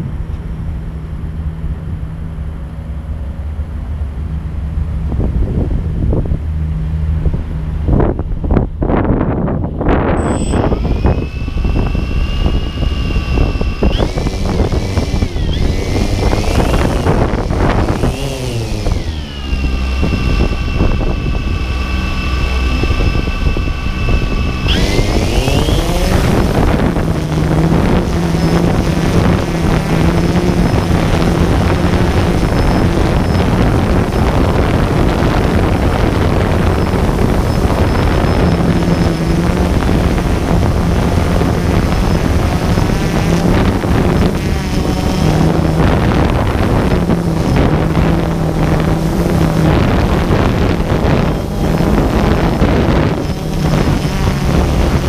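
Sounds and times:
drone motors and propellers whining: 0:00.0 - 0:55.0.

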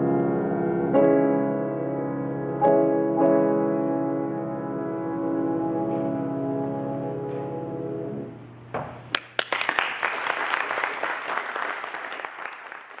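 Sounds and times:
piano chord ringing: 0:00.0 - 0:08.4
applause: 0:09.1 - 0:13.0.

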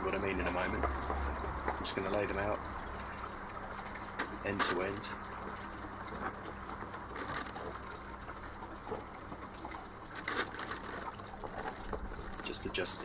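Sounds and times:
wet fish handling: 0:03.0 - 0:13.0
foil crackling: 0:06.9 - 0:07.8, 0:10.0 - 0:13.0.

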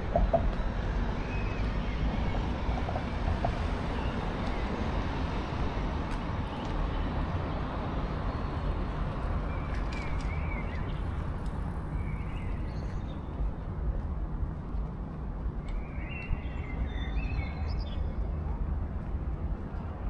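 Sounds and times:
distant traffic rumble: 0:00.0 - 0:20.0.

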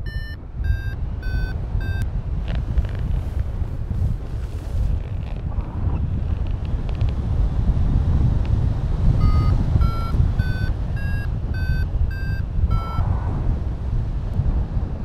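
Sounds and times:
variometer short beeps: 0:00.0 - 0:02.1, 0:09.2 - 0:13.1
wind on microphone: 0:00.0 - 0:15.0.

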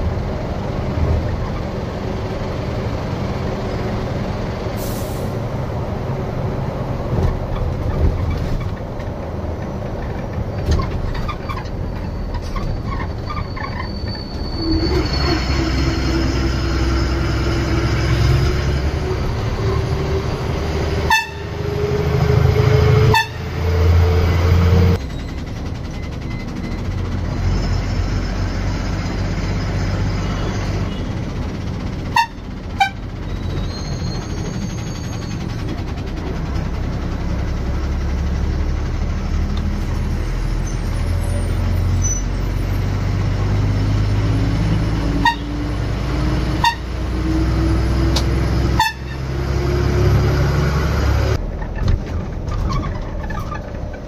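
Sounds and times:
bus engine drone: 0:00.0 - 0:54.0.

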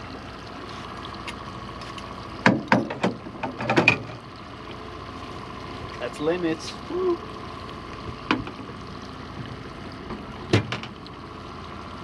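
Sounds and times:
outboard motor running: 0:00.0 - 0:12.0
gear knocking against boat: 0:02.4 - 0:04.2.

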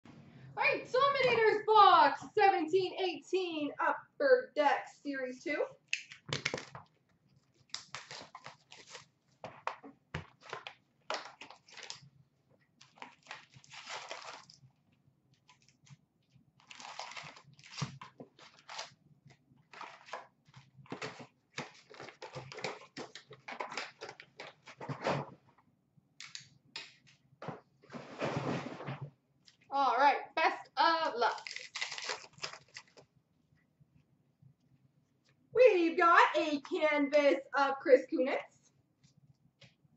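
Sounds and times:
wrappers crinkling and rustling: 0:06.1 - 0:09.1, 0:10.2 - 0:12.1, 0:12.8 - 0:14.6, 0:16.6 - 0:19.0, 0:19.6 - 0:24.9, 0:31.3 - 0:33.0
cardboard tearing: 0:07.7 - 0:09.1, 0:12.8 - 0:14.6, 0:16.6 - 0:19.0, 0:31.3 - 0:33.0.

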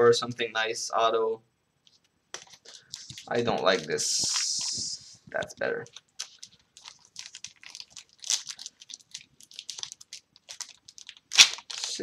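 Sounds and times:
wrapper crinkling as torn open: 0:05.9 - 0:12.0.

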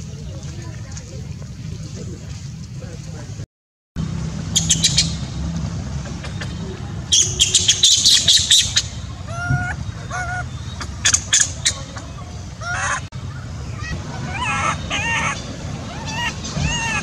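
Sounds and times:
low background rumble: 0:04.0 - 0:17.0
shrill animal squawks: 0:07.1 - 0:12.0, 0:12.6 - 0:13.1, 0:13.8 - 0:17.0.

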